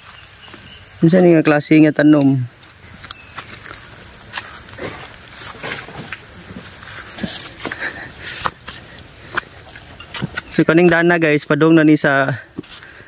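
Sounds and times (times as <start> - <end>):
insects buzzing: 0.0 - 13.0
footsteps: 2.6 - 11.4, 12.4 - 13.0.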